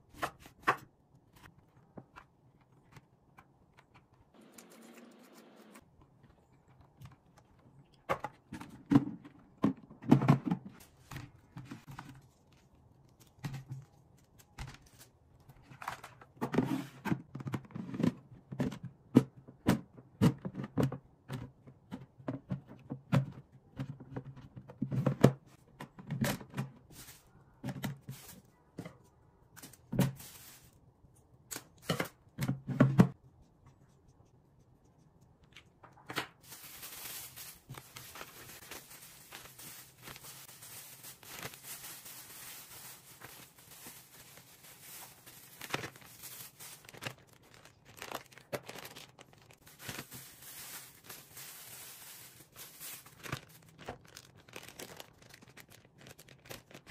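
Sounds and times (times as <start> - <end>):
plastic bag rustling: 26.8 - 28.5, 29.6 - 30.8, 36.4 - 56.9.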